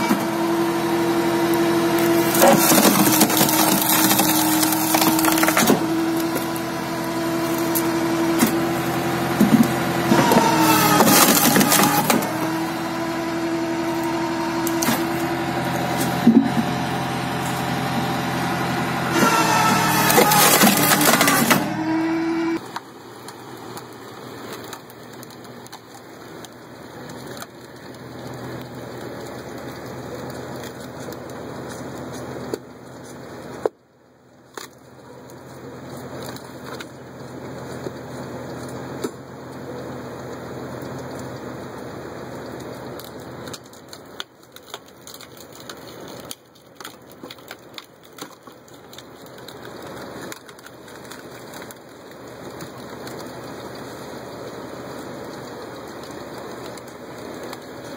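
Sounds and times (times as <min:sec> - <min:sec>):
wood splitting cracks: 0:00.0 - 0:33.8, 0:34.4 - 0:39.7, 0:42.2 - 0:57.9
engine hum: 0:00.0 - 0:57.9
steady hiss: 0:51.8 - 0:57.9.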